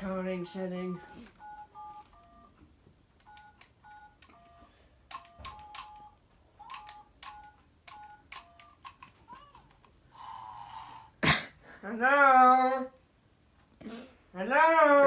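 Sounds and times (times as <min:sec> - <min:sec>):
toy phone keypad beeps: 0:00.9 - 0:02.6, 0:03.2 - 0:09.7.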